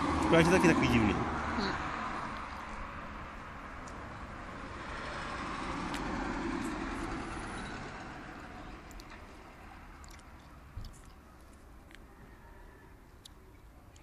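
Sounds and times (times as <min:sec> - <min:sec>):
vehicle passing: 0:00.0 - 0:10.0.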